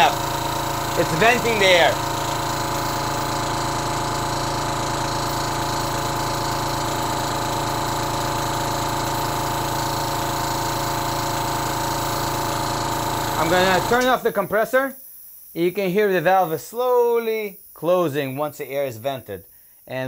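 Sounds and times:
compressor running: 0.0 - 14.7
relief valve hissing: 0.0 - 16.6.

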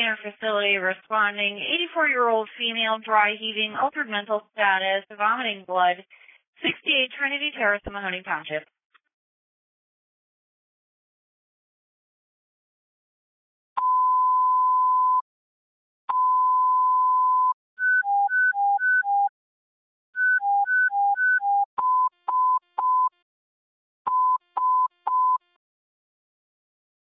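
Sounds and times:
long steady beep: 13.8 - 15.2, 16.1 - 19.3, 20.2 - 23.1.

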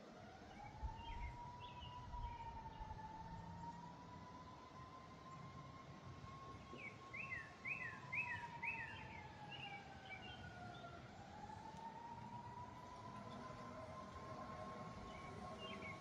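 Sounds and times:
distant siren wailing: 0.0 - 16.0
songbird whistling: 6.8 - 10.8.

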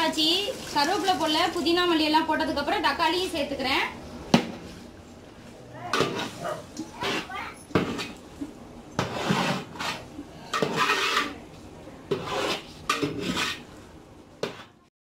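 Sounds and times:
metal ladle scraping a pot: 6.0 - 8.2, 9.0 - 11.4, 12.1 - 13.8, 14.4 - 14.8.

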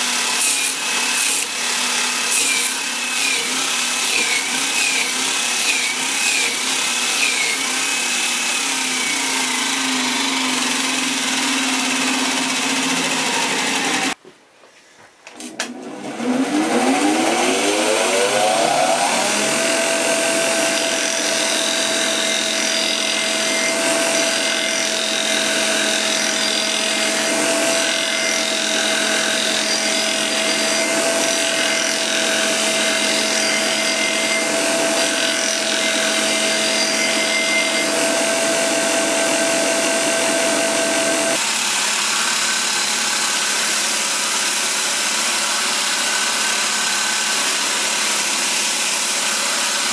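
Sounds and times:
belt grinder motor whine: 0.0 - 14.2, 15.6 - 49.9.

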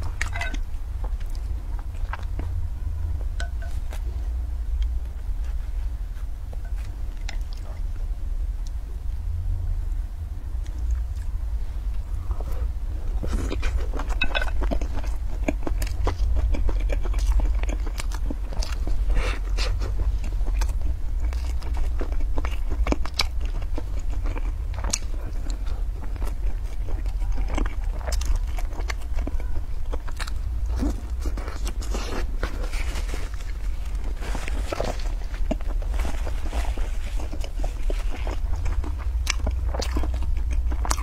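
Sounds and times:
steady low hum: 0.0 - 41.0
crunchy chewing: 10.6 - 41.0.

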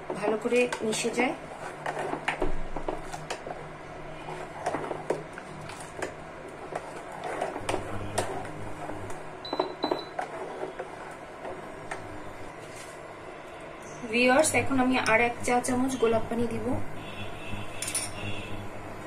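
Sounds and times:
spoon stirring in saucepan: 0.0 - 13.0.

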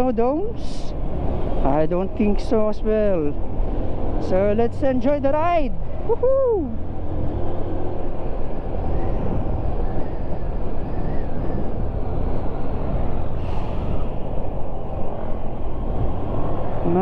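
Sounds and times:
motorcycle road noise: 0.0 - 17.0
wind rush: 5.7 - 17.0.

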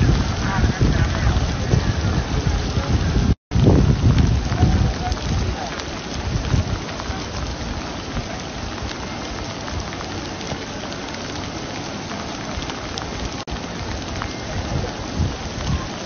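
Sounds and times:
heavy rain on wet paving: 0.0 - 16.0
water dripping: 0.0 - 16.0.

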